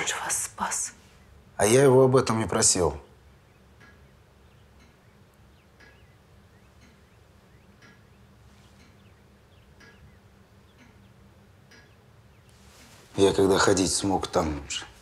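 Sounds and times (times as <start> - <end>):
pendulum clock ticking: 2.2 - 12.5.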